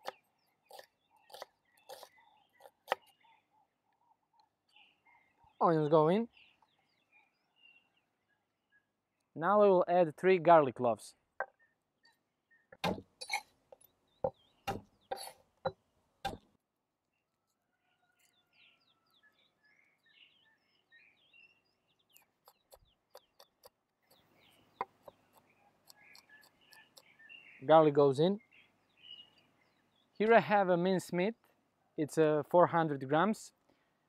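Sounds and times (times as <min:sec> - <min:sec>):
birds chirping: 0:00.0 - 0:34.0
knife chopping on board: 0:12.8 - 0:13.1.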